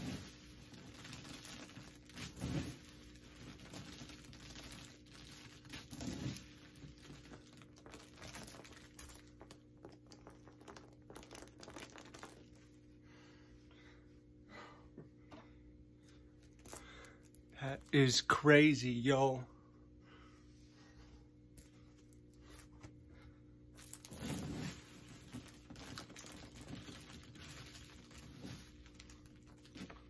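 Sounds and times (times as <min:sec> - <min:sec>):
popcorn rustling and crunching: 0:00.0 - 0:12.6, 0:23.8 - 0:30.0.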